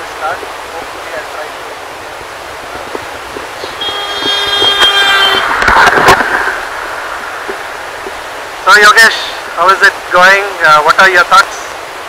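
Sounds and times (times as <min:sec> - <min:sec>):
vehicle horn blast: 0:03.6 - 0:06.2.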